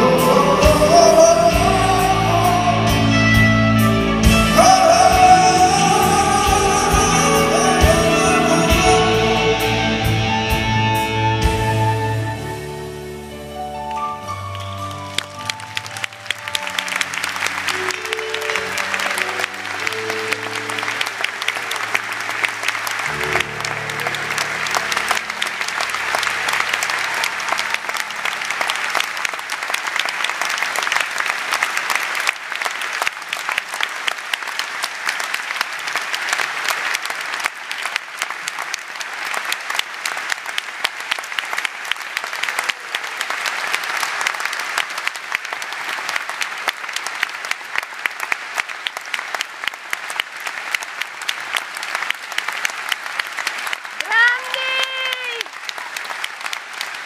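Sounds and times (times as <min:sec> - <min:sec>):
audience clapping: 0:14.2 - 0:57.0.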